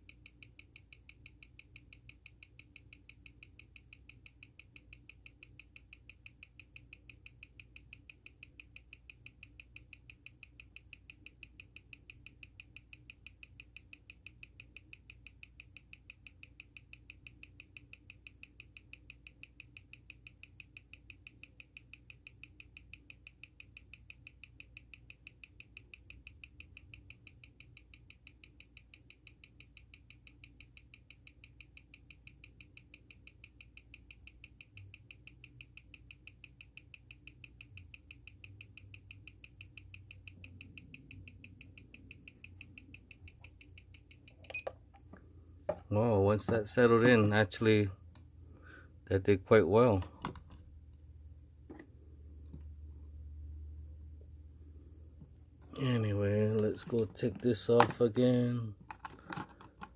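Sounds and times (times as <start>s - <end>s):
watch ticking fast: 0.0s - 44.4s.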